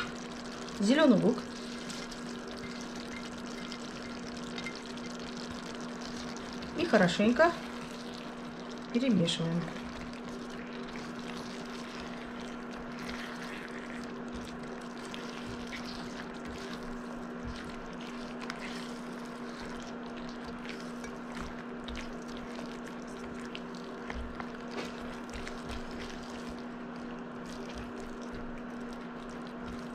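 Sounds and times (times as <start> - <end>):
steady low hum: 0.0 - 29.9
stew simmering and bubbling: 0.0 - 29.9.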